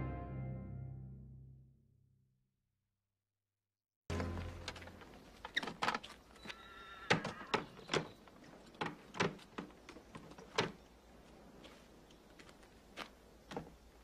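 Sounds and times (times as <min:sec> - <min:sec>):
horse hooves clopping: 0:04.1 - 0:14.0
horse whinny: 0:06.4 - 0:07.8
wooden knocks of a carriage: 0:07.1 - 0:10.8.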